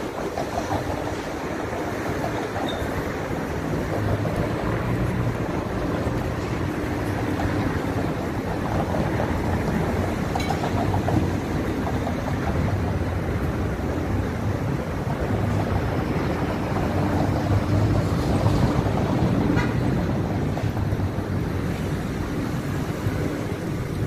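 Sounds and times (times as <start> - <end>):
cars driving past: 0.0 - 24.0
low rumble of engines and tyres: 0.0 - 24.0.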